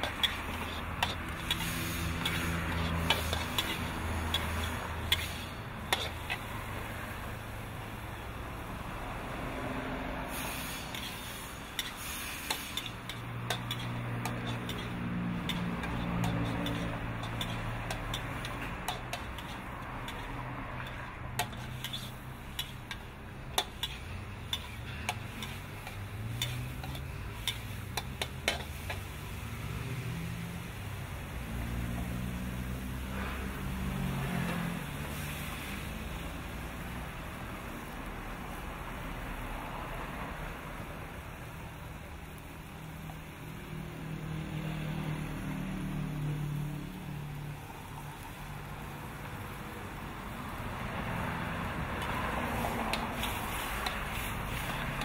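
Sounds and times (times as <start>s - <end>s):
seafood sizzling in a wok: 0.0s - 55.0s
metal spatula striking pan: 11.8s - 29.1s.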